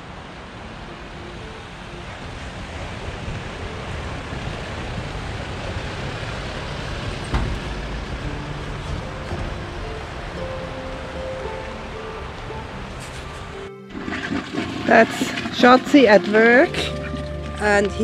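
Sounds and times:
vehicle driving on gravel: 0.0 - 18.0.

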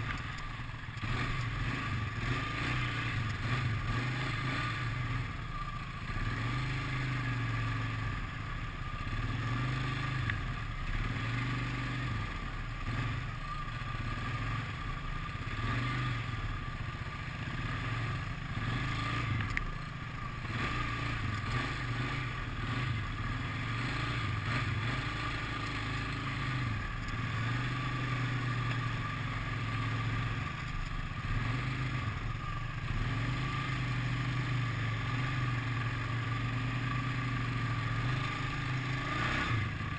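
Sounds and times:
sharp clicks over rough ground: 0.0 - 3.6, 10.1 - 10.5, 18.9 - 19.8, 20.6 - 21.8, 24.5 - 29.0, 30.5 - 31.1, 35.8 - 39.9
atv engine revving: 0.0 - 39.9.

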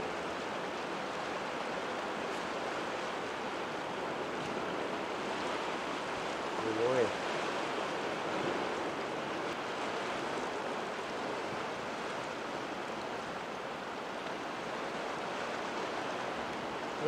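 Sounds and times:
sea surf washing ashore: 0.0 - 17.0.

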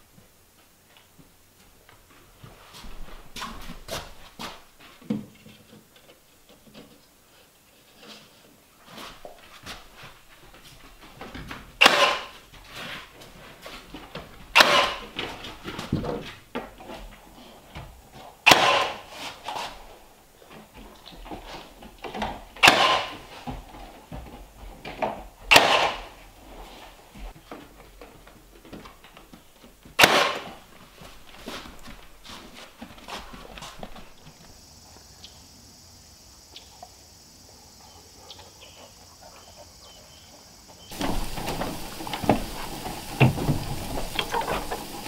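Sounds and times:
nail gun firing: 11.8 - 12.4, 14.5 - 15.2, 18.5 - 19.1, 22.6 - 23.2, 25.5 - 26.2, 30.0 - 30.6
handling clicks and knocks: 40.9 - 45.0.

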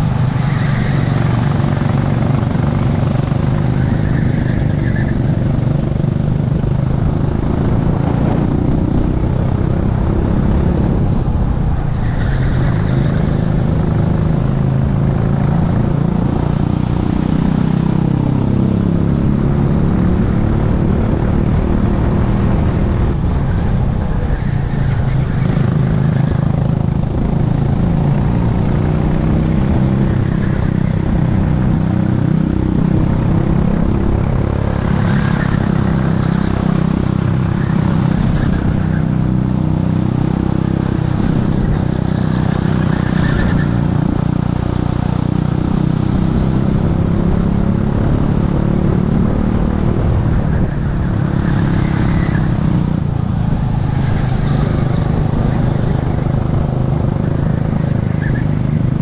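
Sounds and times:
kart engine revving: 0.0 - 59.0
wind rush on camera: 0.0 - 59.0.

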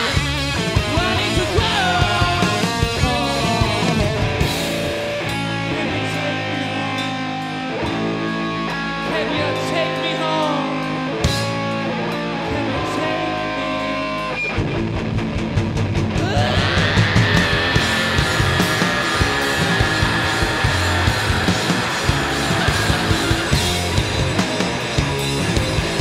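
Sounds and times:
bass guitar: 0.0 - 26.0
electric guitar: 0.0 - 26.0
drum and cymbal hits: 15.2 - 26.0.

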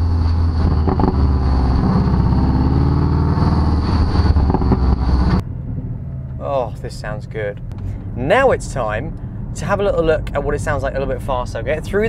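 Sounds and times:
car exhaust note pulling away: 0.0 - 6.6.

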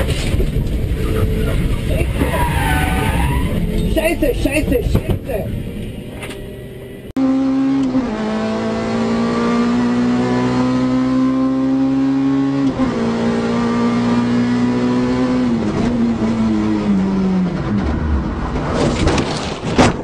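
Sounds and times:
rally car engine revving: 7.2 - 19.2.

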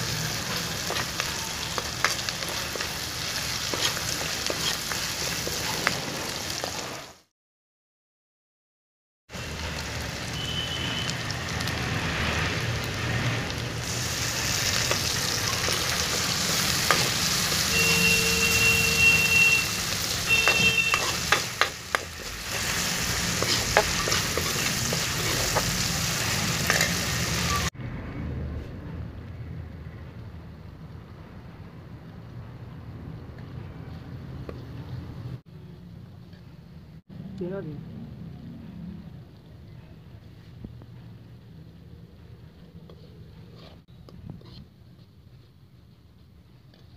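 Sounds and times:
onions sizzling in hot oil: 0.0 - 7.3, 9.4 - 27.7
steel spoon scraping pan: 3.7 - 4.9, 18.4 - 27.2.

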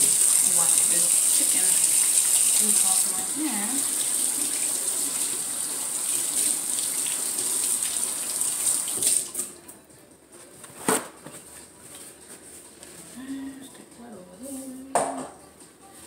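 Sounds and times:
tap water running: 0.0 - 9.5.

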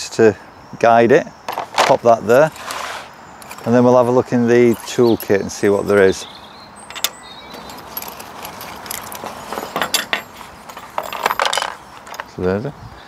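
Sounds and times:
metal tools clinking: 3.4 - 12.4.

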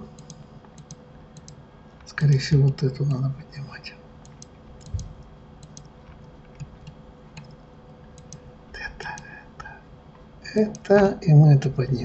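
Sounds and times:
keyboard and mouse clicks: 0.1 - 3.2, 4.2 - 8.4.

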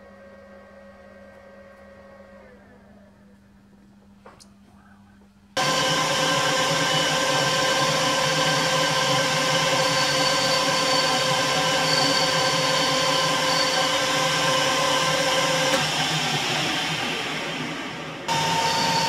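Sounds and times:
metal lathe whining: 5.6 - 19.0.

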